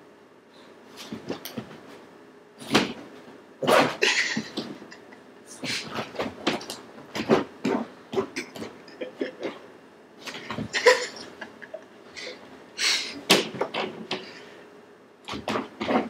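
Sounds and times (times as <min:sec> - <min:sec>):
dog thumping and scuffling: 0:01.0 - 0:02.0, 0:02.6 - 0:04.9, 0:05.6 - 0:08.8, 0:10.2 - 0:11.2.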